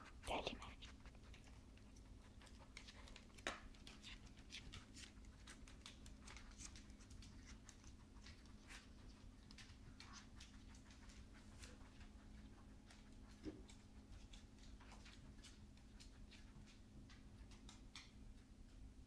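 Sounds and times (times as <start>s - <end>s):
faint steady hum: 0.0s - 19.0s
dog claws clicking on wood floor: 1.2s - 18.8s.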